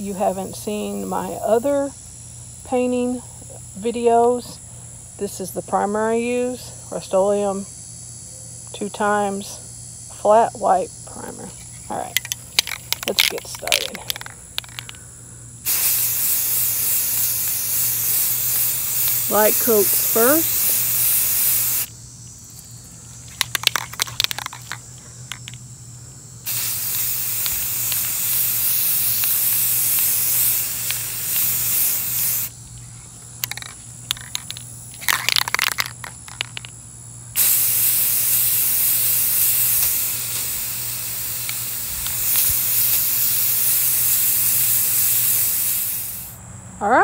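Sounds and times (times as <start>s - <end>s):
spray can mixing ball rattling: 12.1s - 15.0s, 15.7s - 21.9s, 23.2s - 25.6s, 26.5s - 32.5s, 33.4s - 36.7s, 37.4s - 46.3s
spray can hissing: 12.2s - 15.0s, 15.6s - 21.9s, 22.5s - 25.6s, 26.4s - 32.5s, 33.4s - 36.7s, 37.4s - 46.4s.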